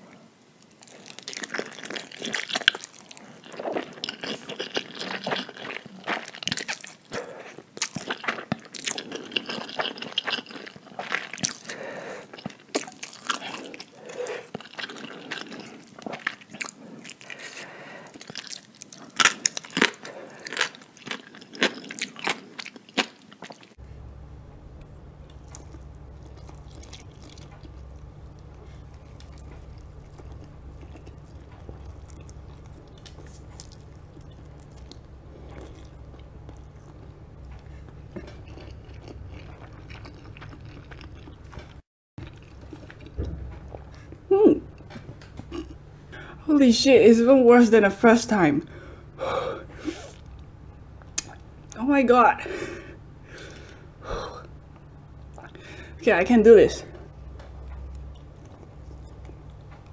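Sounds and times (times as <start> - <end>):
chewing: 0.6 - 23.8, 24.6 - 46.4, 48.6 - 51.8, 53.3 - 56.0, 56.9 - 59.9
steady low hum: 23.4 - 59.9
mouth clicks and smacks: 51.0 - 51.4.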